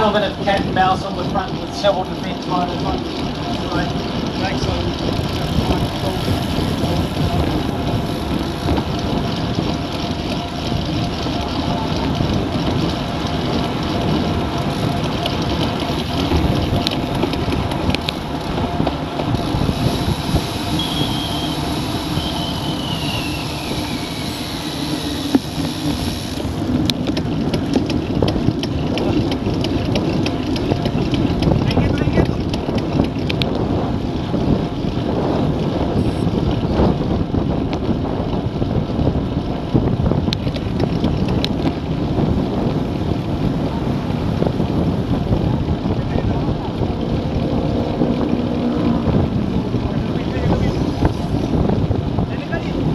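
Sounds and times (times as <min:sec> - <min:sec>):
rapid ticking: 0:00.0 - 0:34.9
bicycle tyre noise: 0:00.0 - 0:52.9
wind rush: 0:00.0 - 0:52.9.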